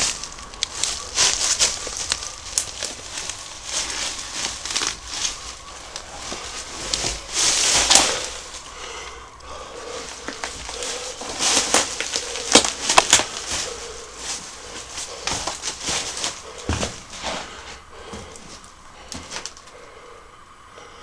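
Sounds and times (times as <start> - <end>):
footsteps crunching over rubble: 0.0 - 19.7
rustling: 0.0 - 19.9
sharp cracks: 9.3 - 16.4.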